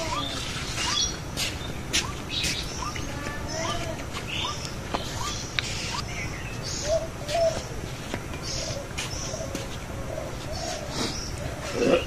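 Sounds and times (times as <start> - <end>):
high bird chirps: 0.0 - 7.7
birds calling: 0.0 - 12.0.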